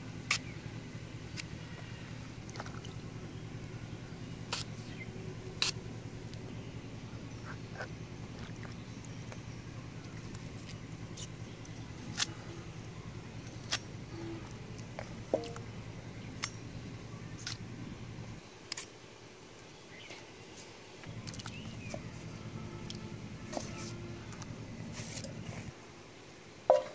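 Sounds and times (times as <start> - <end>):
steady low hum: 0.0 - 20.0, 20.9 - 26.9
blade slicing through stems: 4.5 - 5.0, 5.6 - 5.8, 12.0 - 12.4.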